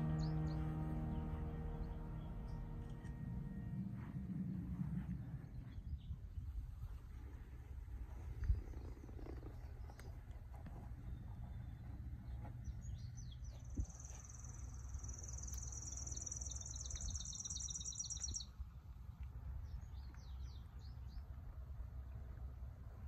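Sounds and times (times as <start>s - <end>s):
bird high rapid trill: 0.0s - 3.6s
steady low rumble: 0.0s - 17.3s
bird short high chirps: 13.2s - 18.5s.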